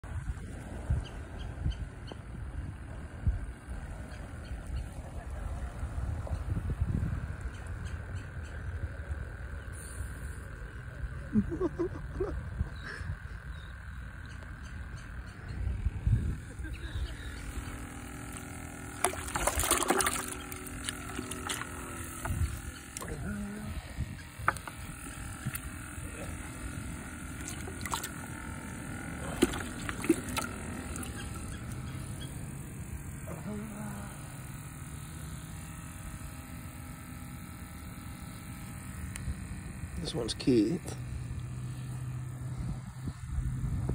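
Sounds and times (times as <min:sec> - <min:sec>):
wind rumbling on microphone: 0:00.0 - 0:08.9, 0:15.5 - 0:17.1, 0:22.1 - 0:25.8, 0:42.5 - 0:43.9
faint high hum: 0:00.0 - 0:43.9
light water splashes: 0:19.0 - 0:23.2, 0:27.3 - 0:28.3, 0:29.2 - 0:31.8
short pitched calls: 0:29.4 - 0:32.5.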